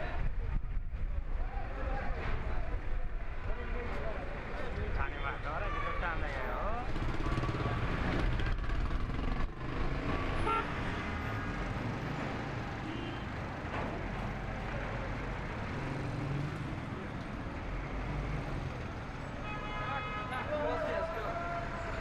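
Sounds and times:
street traffic: 0.0 - 22.0.

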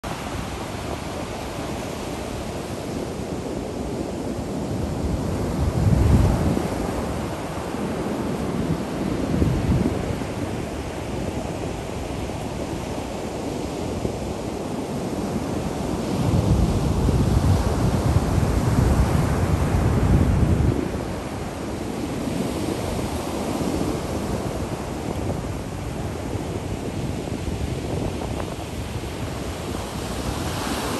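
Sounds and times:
ocean surf washing ashore: 0.0 - 30.9
wind rumbling on microphone: 0.0 - 30.9
ocean waves breaking: 27.4 - 30.9.

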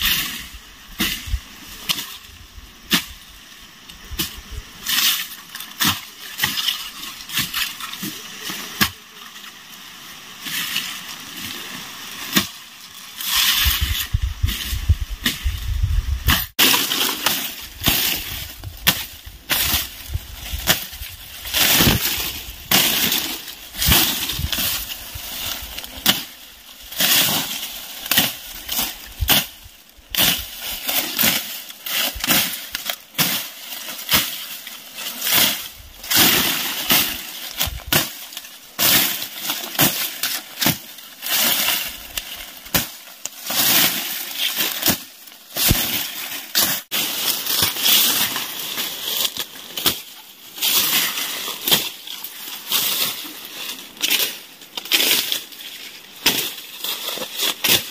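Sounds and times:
machete chopping dry grass: 8.8 - 9.0, 12.3 - 12.6, 16.3 - 53.3, 56.2 - 57.9
dry stems crackling and rustling: 10.7 - 57.9.

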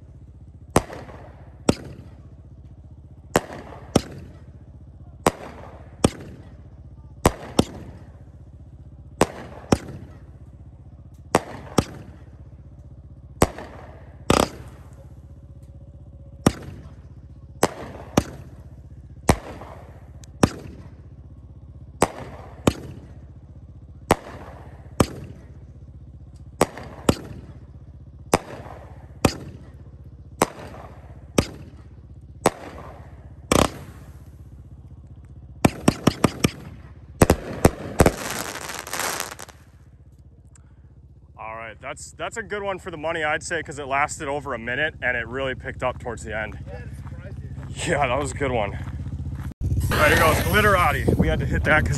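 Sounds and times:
fireworks bangs: 0.0 - 39.9, 49.0 - 51.9.

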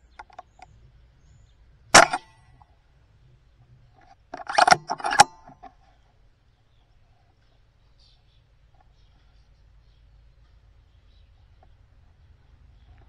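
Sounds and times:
air rifle shot crack: 2.0 - 2.4
clicks and clatter: 2.0 - 2.7, 4.0 - 5.8.

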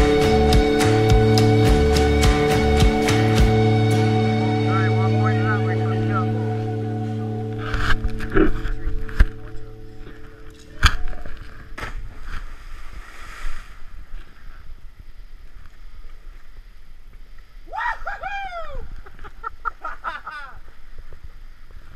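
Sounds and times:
quick voices: 4.5 - 7.2
person yelling: 17.7 - 18.9.

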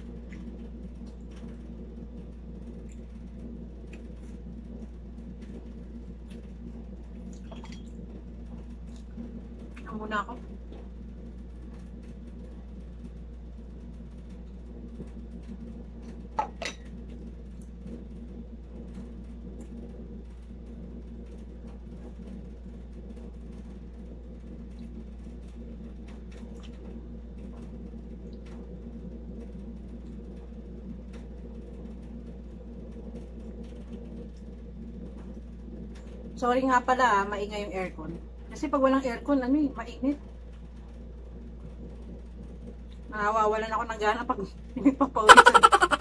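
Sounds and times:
air conditioner humming: 0.0 - 46.0
chewing and eating clicks: 26.3 - 26.9.

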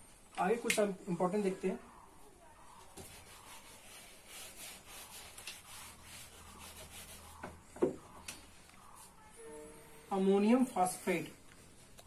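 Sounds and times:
duster wiping whiteboard: 2.7 - 7.6.

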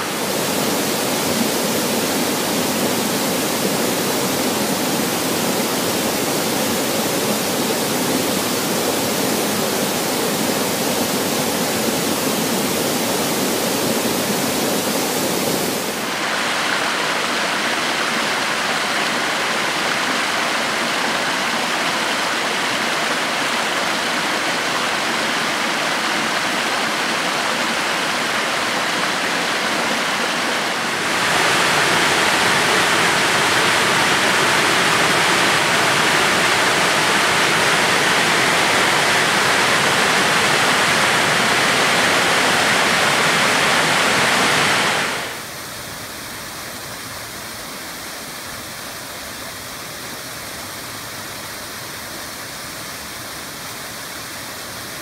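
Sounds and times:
water rushing over rock: 0.0 - 45.5.

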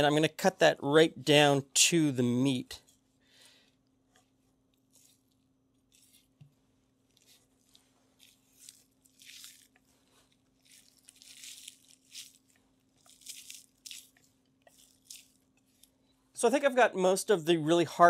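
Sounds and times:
knife slicing through meat fat: 4.8 - 6.4, 7.2 - 9.8, 10.6 - 15.4.

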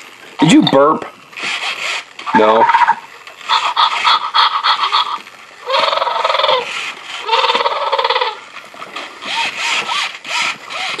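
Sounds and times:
electronic dinosaur sounds from toy: 2.3 - 8.4.

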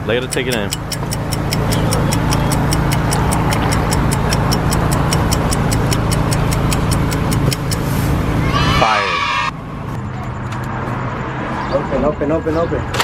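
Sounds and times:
rapid even ticking: 0.0 - 8.0
steady low hum: 0.0 - 10.1.

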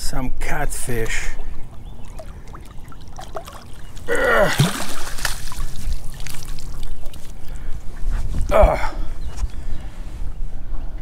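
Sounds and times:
water dripping off net: 1.5 - 7.4
fish splashing in landing net: 1.6 - 7.3.

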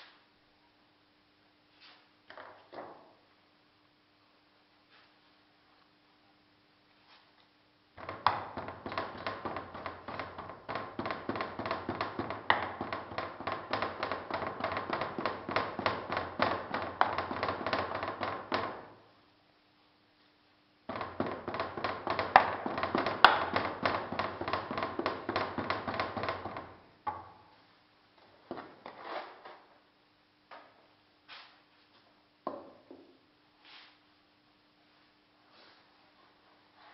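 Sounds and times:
sand being rammed rapid taps: 8.0 - 18.9, 20.9 - 26.7
scattered knocks: 8.0 - 19.0, 20.9 - 27.2.

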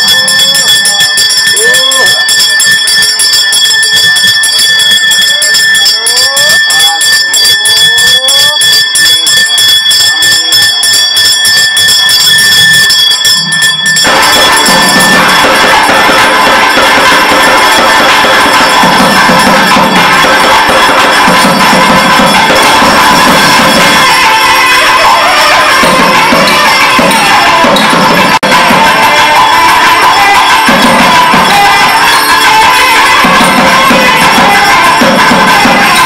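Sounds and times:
temple music of reed pipes and drums: 0.0 - 9.4, 12.1 - 36.0
hand bell ringing rapidly: 0.0 - 36.0.

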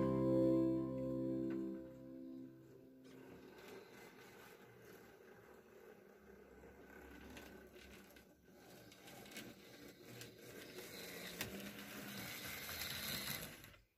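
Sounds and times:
wheels clicking over rails: 2.9 - 13.8
model train motor hum: 3.0 - 13.8.

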